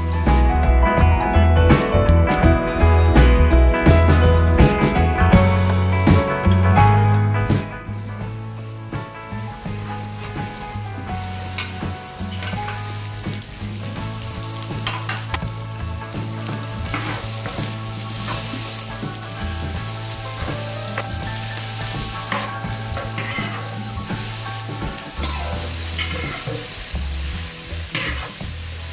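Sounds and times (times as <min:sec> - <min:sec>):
garlic and onion sizzling in pan: 0:00.0 - 0:00.5, 0:05.5 - 0:28.9
metal spoon scraping pan: 0:22.3 - 0:23.7.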